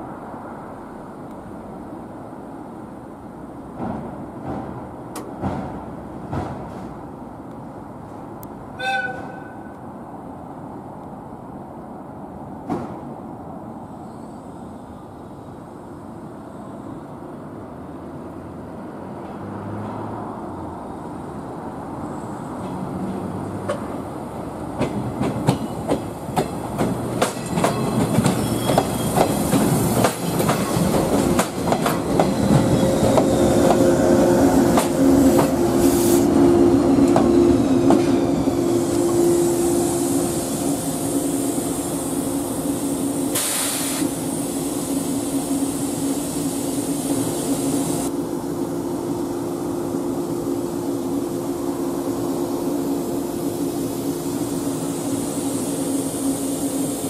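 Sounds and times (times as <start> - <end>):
train hum: 0.0 - 57.0
train wheels clicking over rail joints: 3.7 - 7.1, 24.7 - 33.9, 34.5 - 35.8
short hiss: 43.3 - 44.8.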